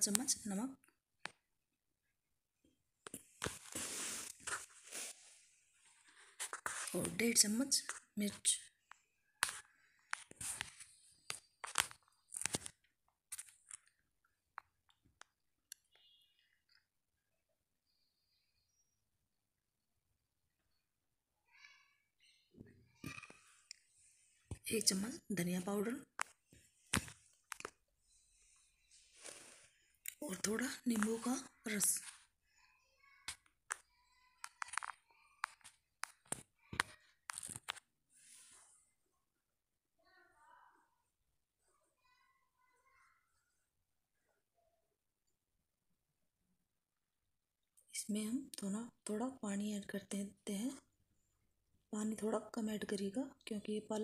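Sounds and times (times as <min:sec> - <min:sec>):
soft rustling scrape: 0:03.4 - 0:07.2, 0:28.4 - 0:29.8.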